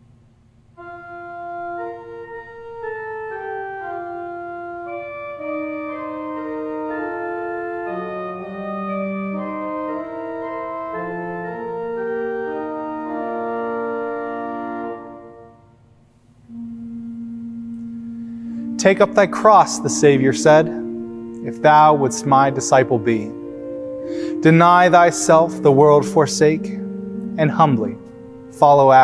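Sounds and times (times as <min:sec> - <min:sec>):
church organ chords: 0:00.0 - 0:29.0.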